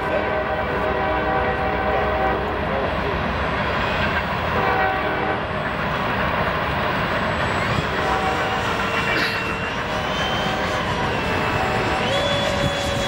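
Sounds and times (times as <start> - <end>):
model jet fan whine passing: 7.7 - 13.0.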